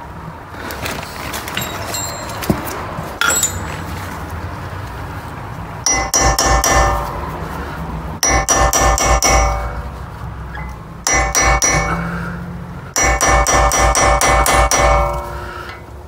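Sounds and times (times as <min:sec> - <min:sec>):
metallic clinks on wheel hub: 0:01.5 - 0:04.0, 0:05.8 - 0:07.3.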